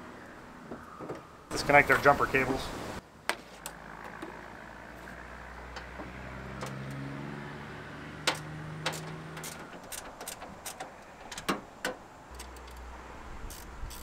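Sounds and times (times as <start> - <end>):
engine running: 3.6 - 10.9
cable clamps clicking: 8.2 - 12.9, 13.5 - 14.0.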